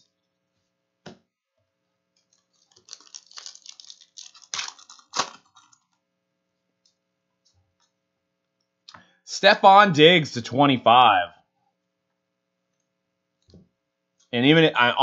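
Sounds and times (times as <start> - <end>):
foil pack crinkling and tearing: 2.2 - 6.0.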